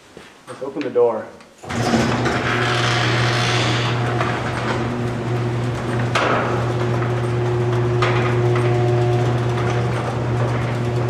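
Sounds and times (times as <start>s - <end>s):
garage door opener motor hum: 1.6s - 11.0s
garage door knocks: 1.8s - 10.6s.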